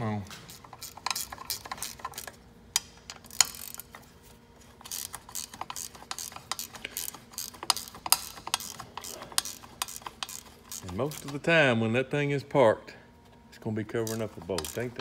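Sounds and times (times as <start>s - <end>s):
ratchet wrench clicking: 0.5s - 4.0s, 4.8s - 11.4s, 14.0s - 15.0s.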